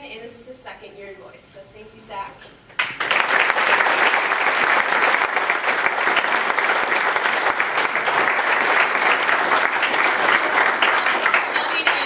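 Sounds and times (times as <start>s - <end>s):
crowd applauding: 2.8s - 12.0s.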